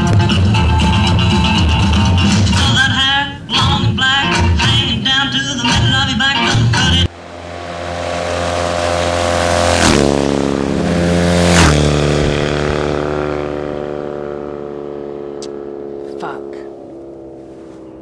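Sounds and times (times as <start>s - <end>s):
motorcycles passing at speed: 7.0s - 18.0s.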